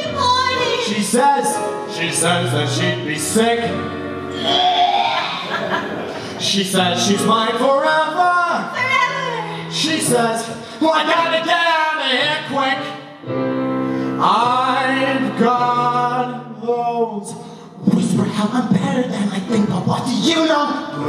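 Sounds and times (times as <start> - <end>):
man singing into a microphone: 9.7 - 13.1, 14.2 - 21.0.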